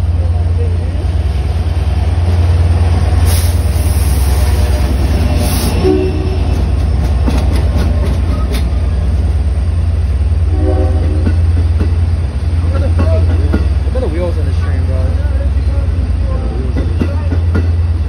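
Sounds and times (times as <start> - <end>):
diesel locomotive engine droning: 0.0 - 18.0
train wheels clicking: 2.1 - 9.5, 11.0 - 18.0.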